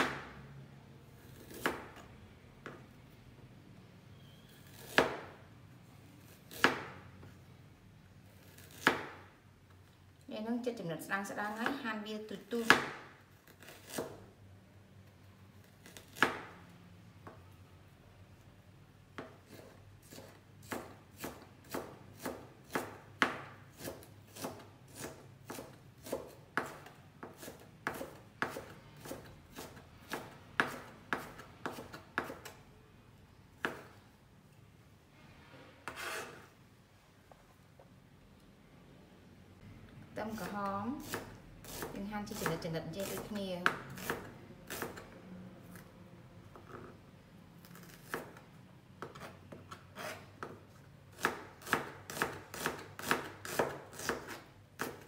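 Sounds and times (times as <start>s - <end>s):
knife chopping on plastic board: 19.2s - 32.6s, 33.6s - 34.0s, 51.2s - 55.0s
knife scraping across board: 35.8s - 36.6s, 49.0s - 50.6s.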